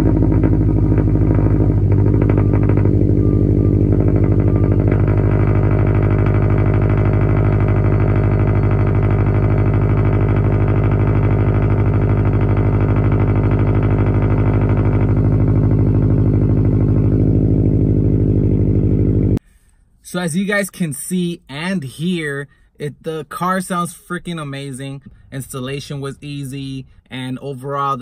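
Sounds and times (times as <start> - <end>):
car engine idling: 0.0 - 19.4.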